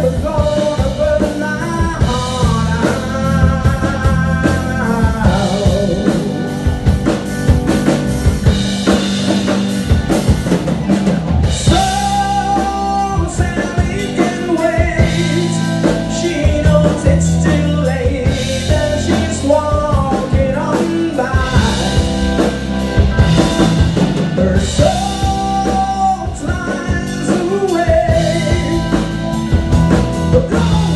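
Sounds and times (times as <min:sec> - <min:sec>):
man singing into microphone: 0:00.0 - 0:06.8, 0:11.6 - 0:22.5, 0:24.2 - 0:29.6, 0:30.2 - 0:30.9
bass guitar: 0:00.0 - 0:30.9
drum kit steady beat: 0:00.0 - 0:30.9
electric guitar: 0:00.0 - 0:30.9.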